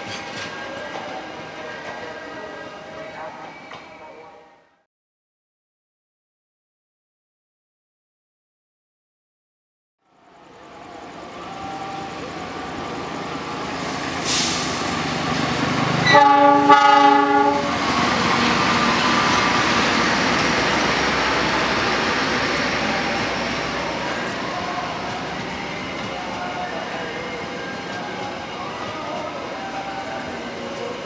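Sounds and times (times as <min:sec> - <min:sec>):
train passing on rails: 0:00.0 - 0:04.8, 0:10.0 - 0:31.0
locomotive horn blast: 0:16.0 - 0:17.8.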